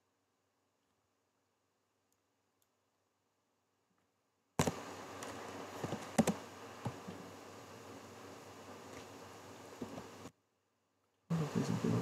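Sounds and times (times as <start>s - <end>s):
faint room hiss: 0.0s - 12.0s
computer mouse clicks: 4.6s - 7.1s.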